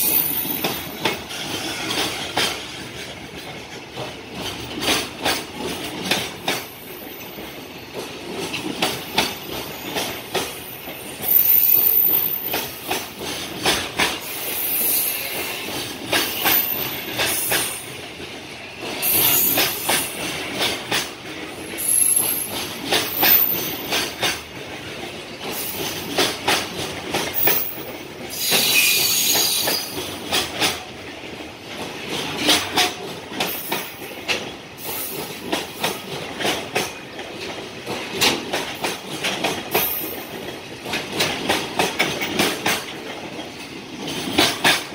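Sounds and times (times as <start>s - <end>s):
train wheels clattering: 0.0s - 44.9s
high wheel squeals: 28.3s - 30.0s.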